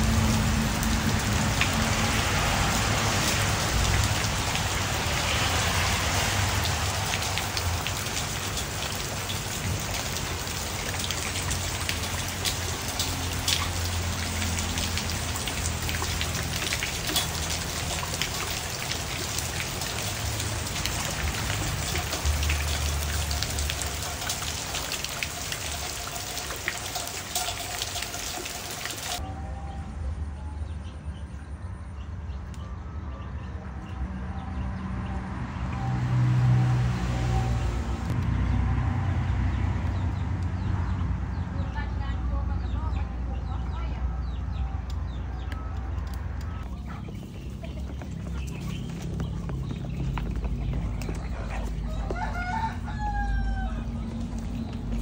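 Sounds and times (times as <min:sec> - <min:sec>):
rain falling on foliage: 0:00.0 - 0:29.2.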